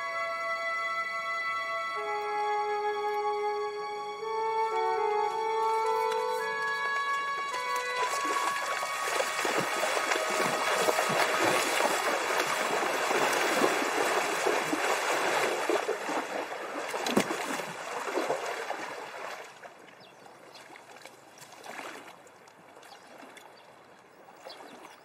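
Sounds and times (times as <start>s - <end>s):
horses splashing through water: 5.6s - 25.0s.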